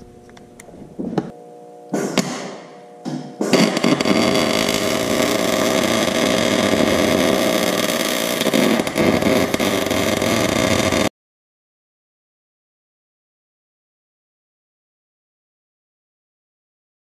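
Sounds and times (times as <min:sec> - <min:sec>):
welder arc crackling: 0:03.4 - 0:11.1.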